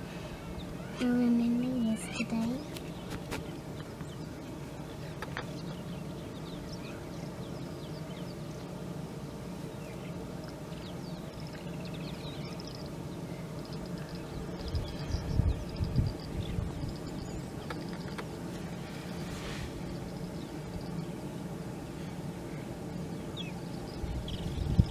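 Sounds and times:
steady low hum: 0.0s - 24.9s
small birds chirping and whistling: 0.3s - 8.6s, 9.7s - 18.3s, 22.5s - 24.9s
faint clicks: 17.6s - 18.3s.

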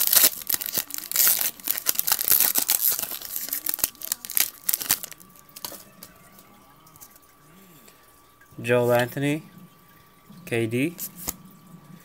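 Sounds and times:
foil wrapper tearing and crinkling: 0.0s - 5.8s.

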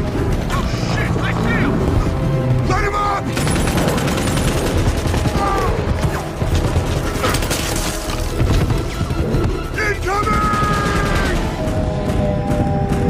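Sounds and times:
people shouting: 5.2s - 6.0s, 9.8s - 11.6s.

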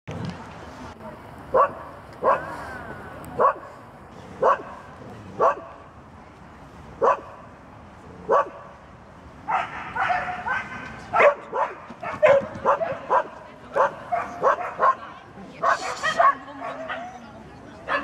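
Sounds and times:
dog barking and yelping: 1.5s - 2.6s, 4.4s - 4.8s, 9.5s - 17.2s.

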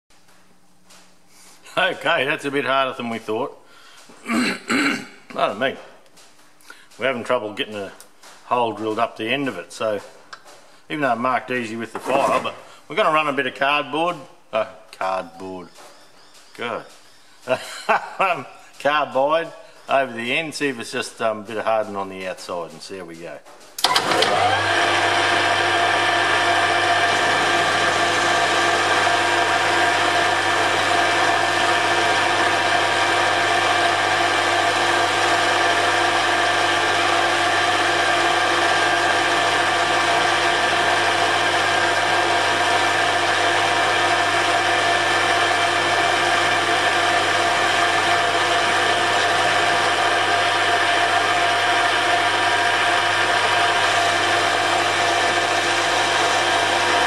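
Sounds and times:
metal lathe whining: 23.8s - 57.0s.

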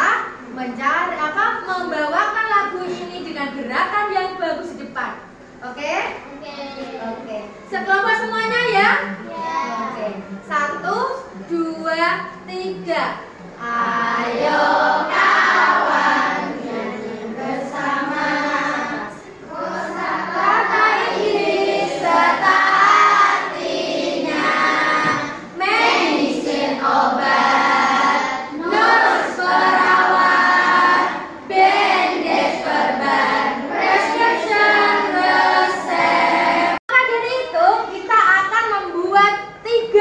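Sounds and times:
children singing in unison: 13.5s - 36.8s.

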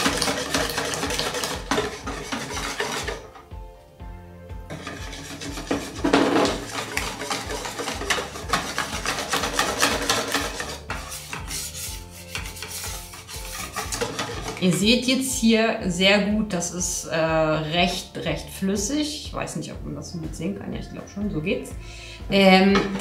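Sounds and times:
wire whisk beating batter in bowl: 0.0s - 3.4s, 4.7s - 15.1s.

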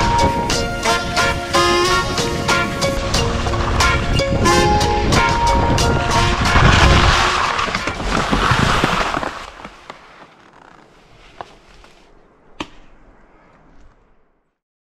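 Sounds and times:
wind on microphone: 0.0s - 9.3s
skis scraping over snow: 1.0s - 14.5s.

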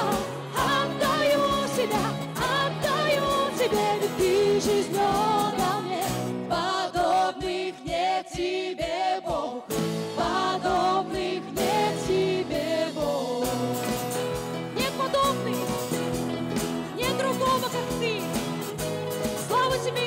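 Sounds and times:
worship band playing: 0.0s - 8.5s, 9.4s - 20.0s
women singing into microphones: 0.0s - 14.1s.

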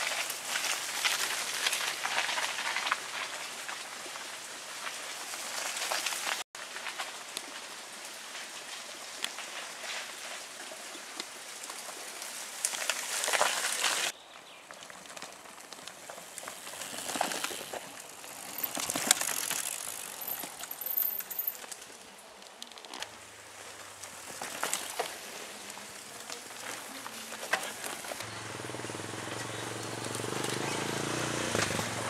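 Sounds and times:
bike tyres crackling on dirt: 0.0s - 32.0s.

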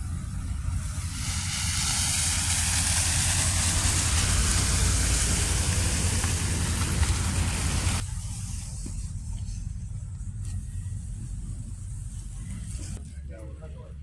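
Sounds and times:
tyres hissing on slush: 0.0s - 8.6s
traffic rumble: 0.0s - 14.0s.

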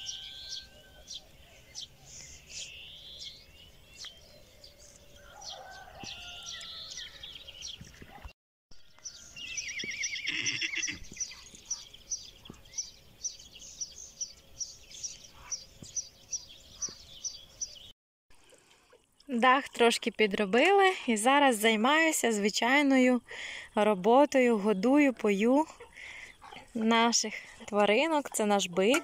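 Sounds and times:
bird chirping steadily: 0.0s - 17.9s, 21.7s - 29.0s
birds chirping: 0.0s - 17.9s, 22.2s - 29.0s
farm animal call wavering pitch: 10.2s - 11.0s.

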